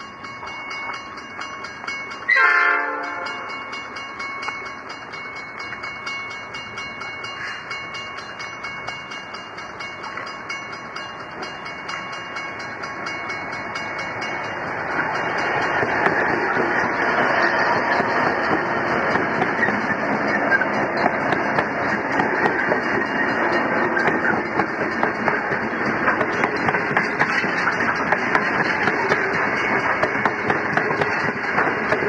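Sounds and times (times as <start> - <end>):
diesel locomotive engines running: 0.0 - 32.0
train rolling: 0.0 - 32.0
locomotive horn blast: 2.3 - 3.4.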